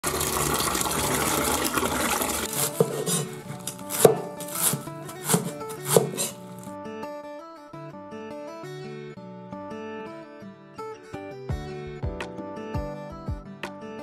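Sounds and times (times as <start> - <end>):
knife chopping food: 2.4 - 6.7
guitar music: 2.5 - 14.0.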